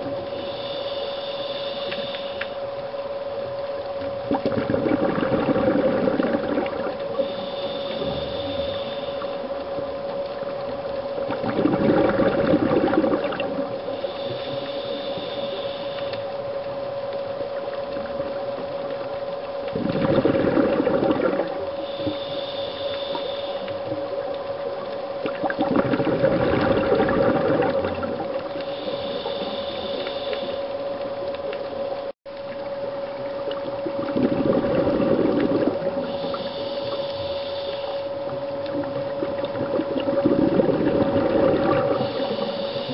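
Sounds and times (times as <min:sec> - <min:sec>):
steady hum: 0:00.0 - 0:42.9
hissing inhalation: 0:00.3 - 0:02.6, 0:07.2 - 0:09.4, 0:13.9 - 0:16.2, 0:21.7 - 0:23.8, 0:28.6 - 0:30.7, 0:36.0 - 0:38.1, 0:41.9 - 0:42.9
diver exhaling bubbles: 0:04.3 - 0:09.0, 0:11.3 - 0:13.8, 0:19.7 - 0:22.2, 0:25.3 - 0:30.4, 0:33.9 - 0:36.9, 0:38.8 - 0:42.9.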